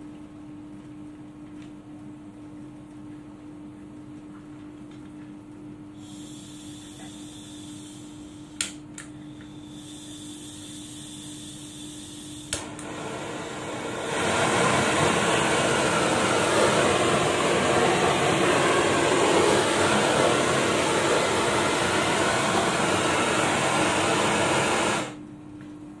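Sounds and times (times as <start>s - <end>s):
gas torch flame hissing: 5.9s - 8.8s, 9.4s - 25.2s
gas torch igniter click: 8.6s - 9.1s, 12.3s - 19.8s.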